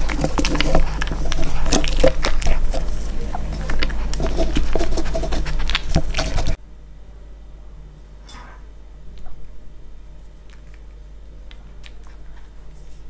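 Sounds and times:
dog crunching kibble: 0.0 - 6.6.

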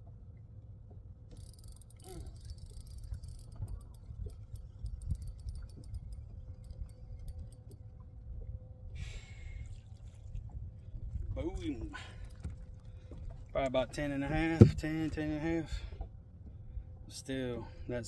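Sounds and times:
fishing reel clicking: 1.3 - 7.8
low wind rumble: 2.2 - 18.0.

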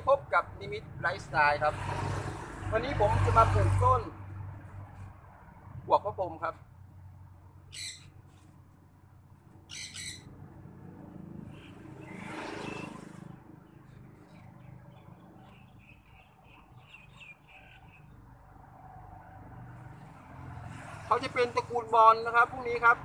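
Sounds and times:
small birds chirping: 7.6 - 8.5, 9.5 - 10.3, 11.4 - 18.5.

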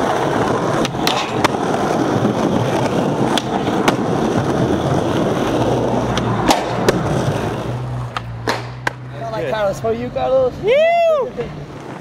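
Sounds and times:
skateboard clacks: 0.0 - 9.1, 11.6 - 12.0
skateboard wheels rolling on concrete: 0.0 - 12.0.

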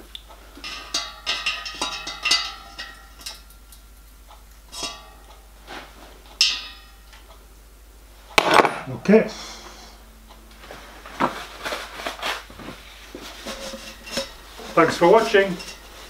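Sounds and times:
metal spanners clinking: 0.6 - 3.8, 4.7 - 5.3, 13.3 - 16.0.

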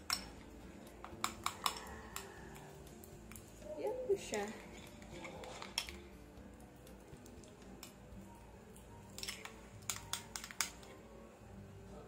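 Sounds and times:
spoon clinking and scraping bowl: 4.5 - 6.0.

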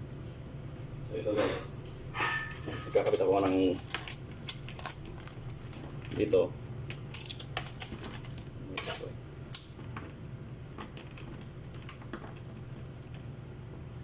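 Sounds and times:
steady low hum: 0.0 - 14.0
clicks and rattles of connectors: 6.8 - 10.1.

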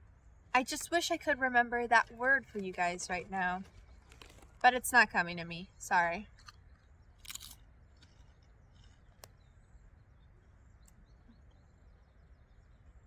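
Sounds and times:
faint outdoor hum: 0.0 - 13.0
faint bird chirps: 8.2 - 13.0.

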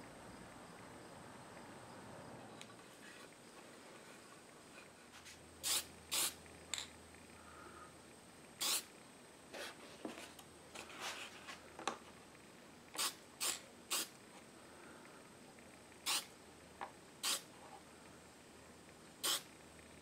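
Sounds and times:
aerosol spray can hissing: 5.6 - 6.4, 8.6 - 8.9, 13.0 - 14.2, 16.0 - 16.3, 17.2 - 17.5, 19.2 - 19.5.

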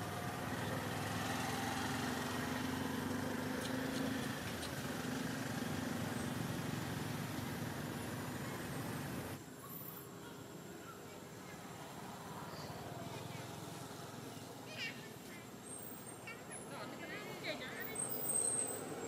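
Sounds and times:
engine humming steadily: 0.0 - 9.5.

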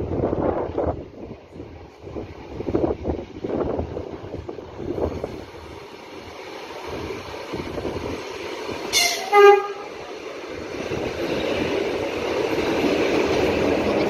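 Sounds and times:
train rumbling alongside: 0.0 - 14.0
train horn: 8.9 - 10.0.

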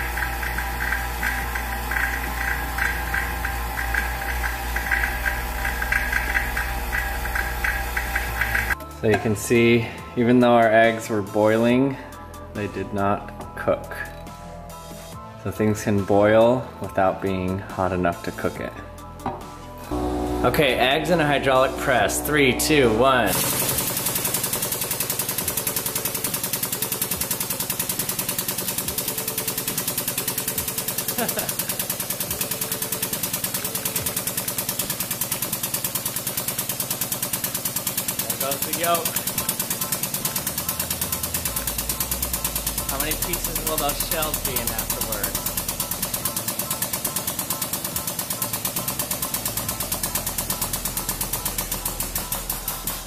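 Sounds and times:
hydraulic press mechanical chatter: 0.0 - 8.8, 19.9 - 53.0
low hum: 19.8 - 24.5.

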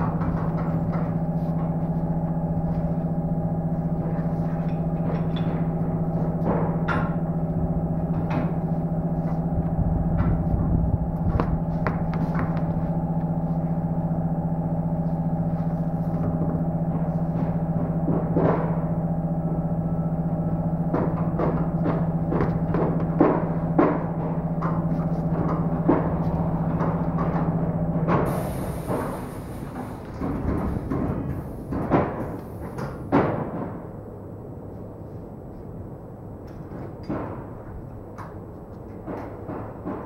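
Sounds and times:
low hum of held tones: 0.0 - 40.0
short knocks and clatters: 20.8 - 33.9.

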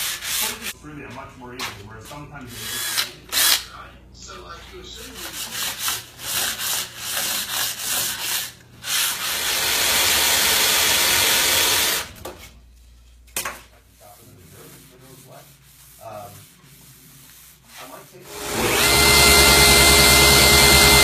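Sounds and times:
sandpaper rubbing on wood: 0.0 - 0.8, 13.9 - 18.2.

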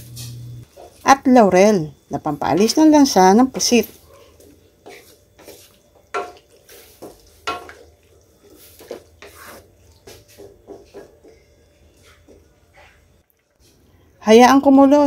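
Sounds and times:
spatula scraping and knocking wok: 4.5 - 13.0.

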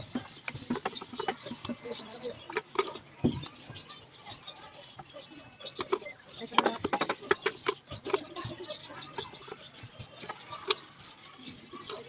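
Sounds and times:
plastic bottles clicking on wood: 0.0 - 3.6, 5.7 - 9.6.

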